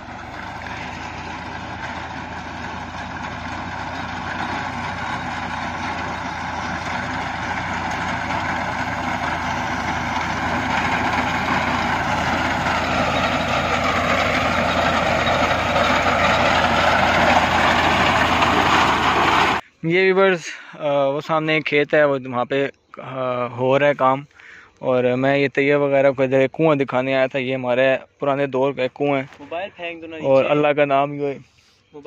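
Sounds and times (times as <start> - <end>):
tractor engine running: 0.0 - 19.6
reaper cutting wheat: 0.2 - 19.6.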